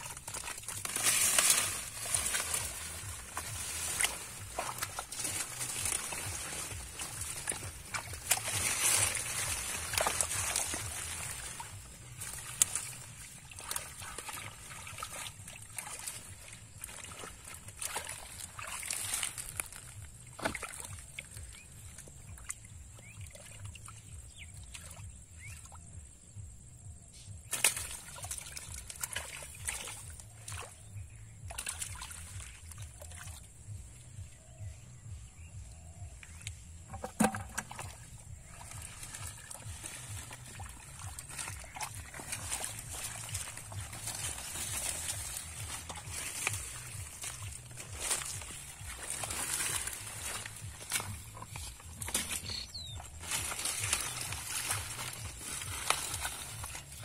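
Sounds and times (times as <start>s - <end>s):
sharp splashes: 0.0s - 21.6s, 27.5s - 30.7s, 37.0s - 57.0s
muddy water sloshing and splashing: 0.0s - 26.2s, 27.3s - 57.0s.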